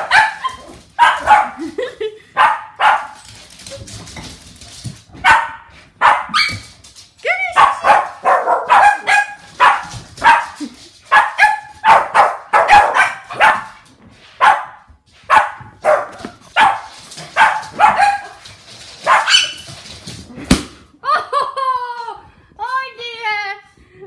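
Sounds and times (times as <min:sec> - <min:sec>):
small dogs barking: 0:00.0 - 0:01.6, 0:02.4 - 0:03.2, 0:05.2 - 0:06.6, 0:07.6 - 0:13.8, 0:14.4 - 0:18.4, 0:19.0 - 0:19.6.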